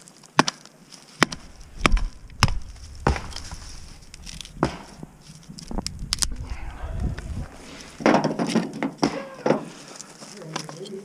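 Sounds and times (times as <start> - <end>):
sharp blows on wood: 1.2 - 5.2.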